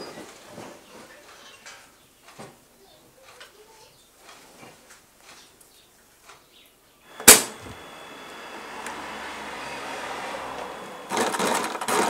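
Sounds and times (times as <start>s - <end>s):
electric sewing machine running: 7.1s - 12.0s
sharp loud click: 7.2s - 7.8s.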